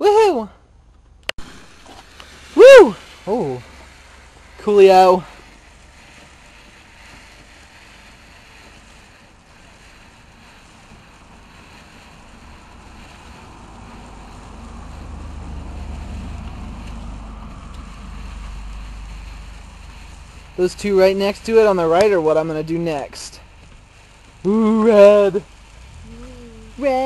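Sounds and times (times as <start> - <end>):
firework hissing rush: 1.3 - 27.0
deep rumble: 22.9 - 27.0.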